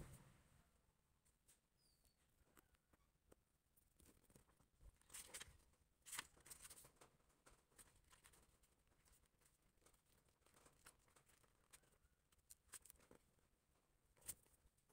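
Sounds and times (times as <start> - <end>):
book pages rustling: 3.9 - 11.9, 12.5 - 13.2.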